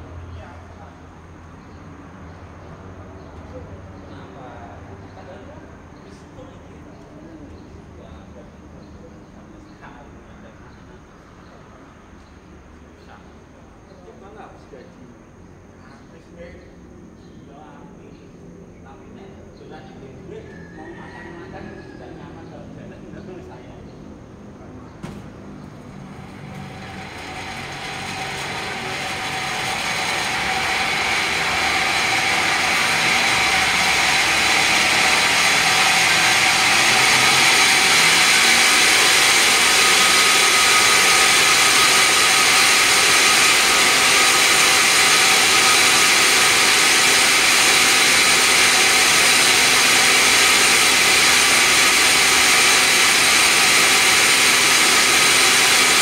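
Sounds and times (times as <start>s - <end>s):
band saw running: 25.0s - 56.0s.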